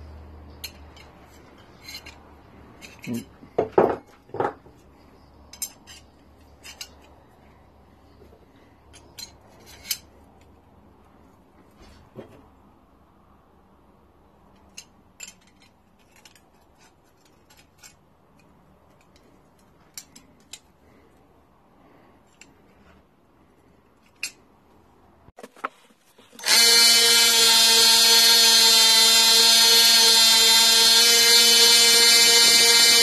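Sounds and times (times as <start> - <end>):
belt sander running with high whine: 26.4 - 33.0.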